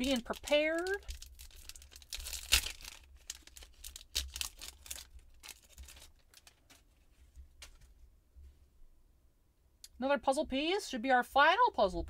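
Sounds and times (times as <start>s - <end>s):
wrapper tearing and crinkling: 0.0s - 7.0s.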